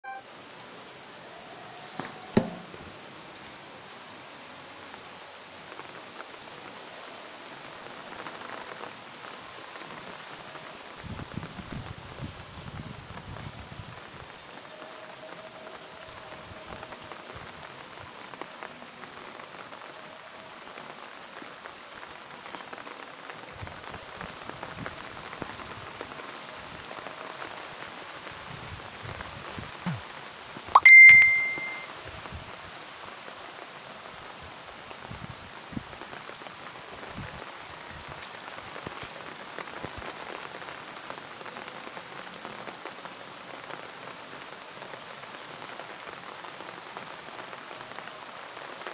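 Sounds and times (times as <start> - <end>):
rain on paving stones: 0.0 - 48.9
sharp ringing ding: 30.8 - 31.9.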